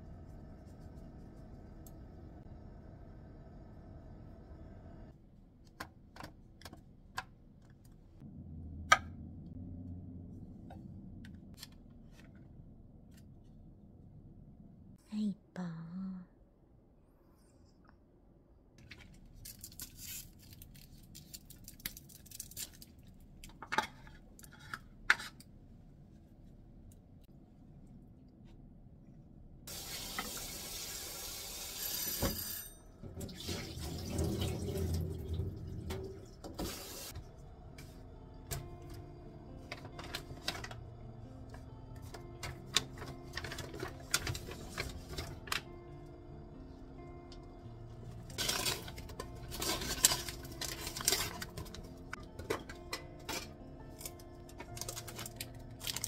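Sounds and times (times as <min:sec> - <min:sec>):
plastic packaging crinkling: 0:19.0 - 0:23.2, 0:48.3 - 0:51.9, 0:54.0 - 0:56.0
soft background music: 0:33.0 - 0:56.0.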